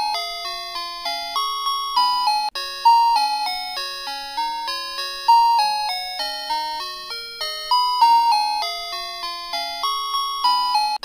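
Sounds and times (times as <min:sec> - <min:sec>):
electronic bell-like melody: 0:00.0 - 0:11.0.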